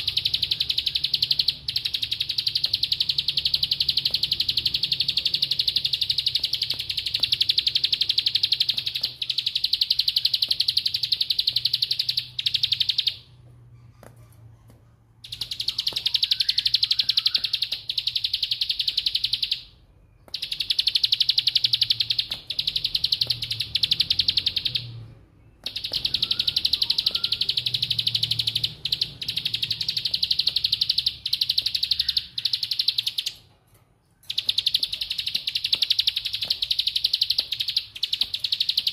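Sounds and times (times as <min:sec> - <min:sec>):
bird rattling trills: 0:00.0 - 0:13.2, 0:15.2 - 0:19.6, 0:25.6 - 0:33.5.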